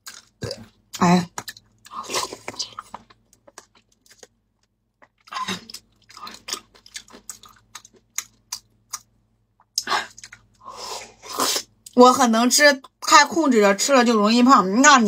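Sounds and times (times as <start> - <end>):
person sipping and chewing: 1.5 - 4.3, 5.0 - 9.0, 9.7 - 11.7.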